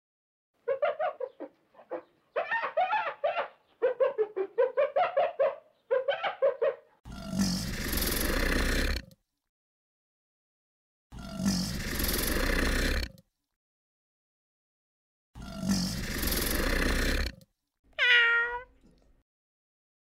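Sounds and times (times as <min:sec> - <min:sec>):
hyenas giggling: 0:00.6 - 0:07.0
crocodile hissing: 0:07.1 - 0:09.1, 0:11.2 - 0:13.2, 0:15.4 - 0:17.4.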